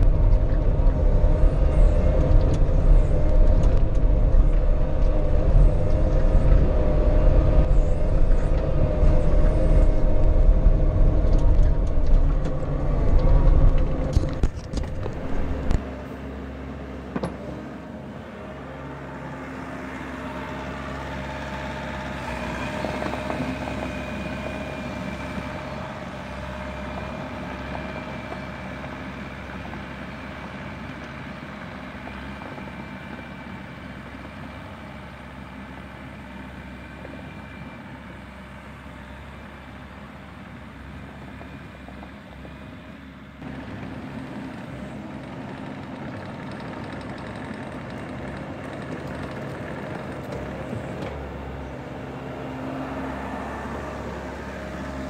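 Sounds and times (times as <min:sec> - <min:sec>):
steady whine: 0:00.0 - 0:30.1
excavator engine running: 0:00.0 - 0:55.0.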